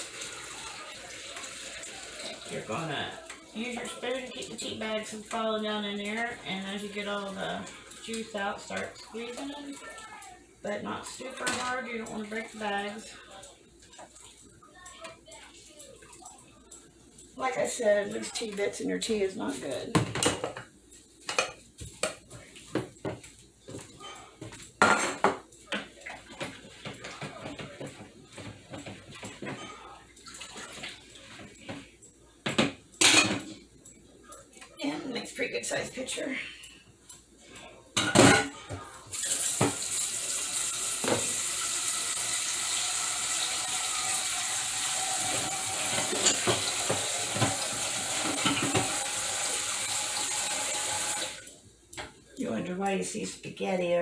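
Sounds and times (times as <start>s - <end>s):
tap water running into sink: 39.1s - 51.5s.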